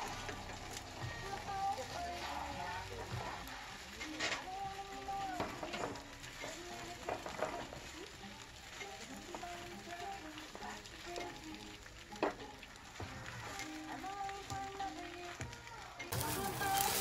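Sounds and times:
food sizzling in a frying pan: 0.0 - 17.0
melodic background tune: 16.0 - 17.0.

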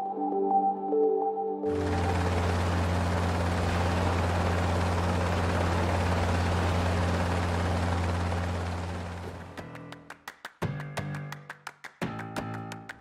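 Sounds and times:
helicopter rotor and turbine: 1.7 - 9.6.

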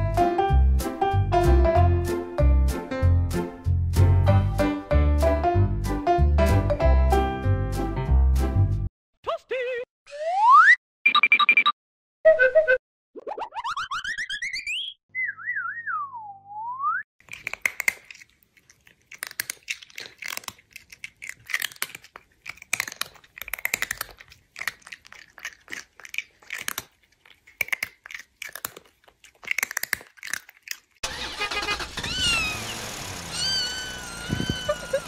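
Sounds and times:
music with sliding whistle tones: 14.1 - 17.0
cat chewing noisily: 17.2 - 31.0
cat mewing: 33.3 - 35.0.

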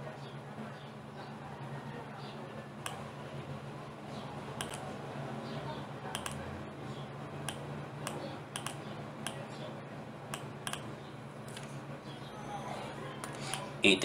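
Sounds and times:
steady low hum: 0.0 - 14.0
computer mouse clicking: 4.6 - 4.8, 6.1 - 6.4, 7.4 - 9.4, 10.3 - 10.9, 13.2 - 13.7.

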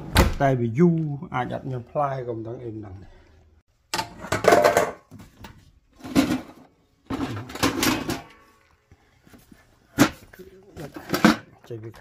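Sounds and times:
household clattering and rustling: 3.9 - 12.0
hand rummaging in metal bucket: 4.1 - 8.5.

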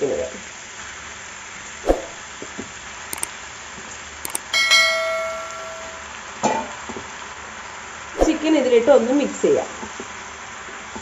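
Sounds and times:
mouse clicks: 4.3 - 4.5
bright bell ding: 4.3 - 6.1.

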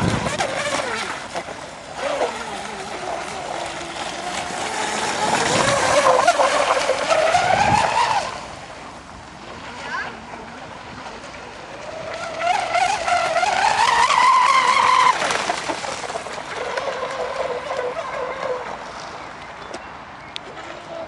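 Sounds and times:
electric motor whine: 0.0 - 8.4.

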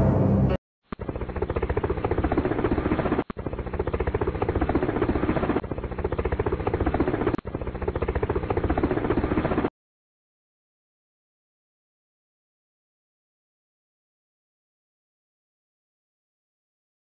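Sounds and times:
helicopter rotor chopping: 0.8 - 9.7.

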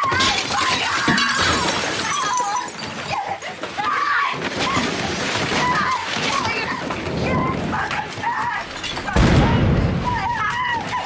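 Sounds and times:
crashes and clattering: 0.0 - 11.0.

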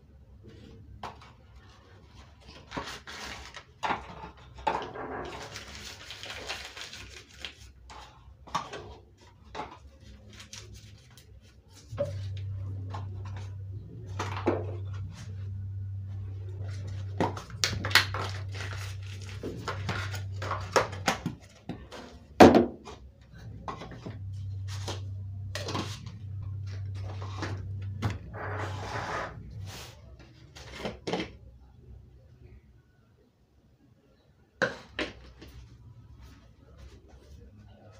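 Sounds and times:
kitchen items clattering: 1.0 - 6.7
low hum: 10.3 - 33.1.

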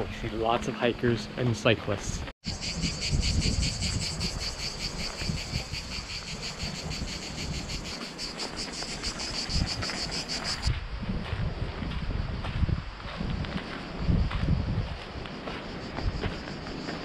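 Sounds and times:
insects buzzing: 2.4 - 10.7, 13.4 - 17.0.

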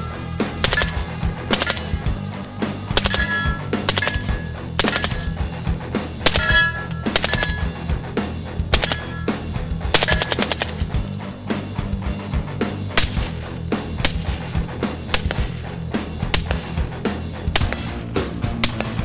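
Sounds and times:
background music: 0.0 - 19.0
suppressed rifle shots: 0.6 - 2.2, 2.9 - 5.6, 6.2 - 8.1, 8.7 - 11.1, 12.9 - 19.0.

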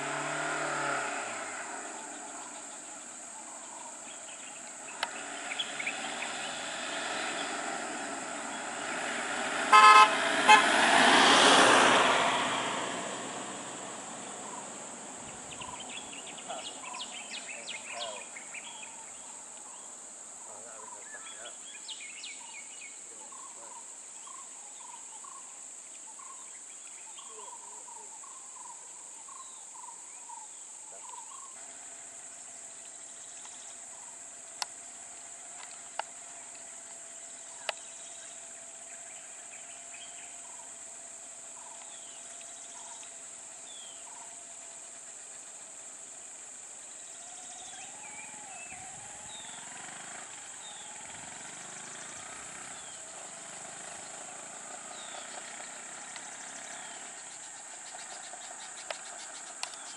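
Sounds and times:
vehicle engine running: 0.0 - 19.8, 31.2 - 59.9
insects droning: 0.0 - 59.9
bird chirps: 1.8 - 8.8, 14.2 - 31.6, 32.2 - 40.8, 41.4 - 59.9
sharp clicks: 58.8 - 59.9.

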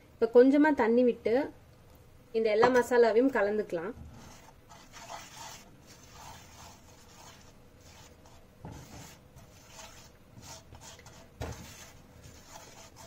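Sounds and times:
spoon stirring paste in pan: 3.8 - 13.0.

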